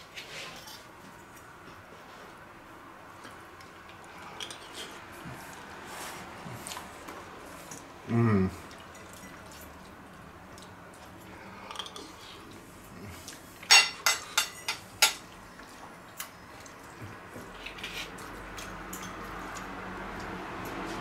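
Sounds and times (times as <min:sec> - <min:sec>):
fork clinking against a plate: 0:13.6 - 0:15.2.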